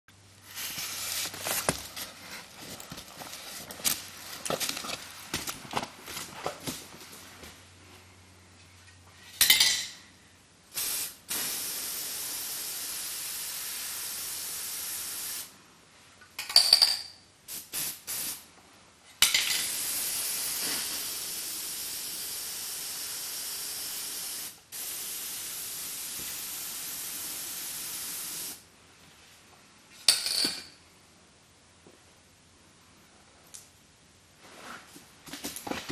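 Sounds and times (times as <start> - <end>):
steady hiss: 0.2 - 5.6, 10.6 - 15.7, 17.4 - 18.6, 19.2 - 28.8.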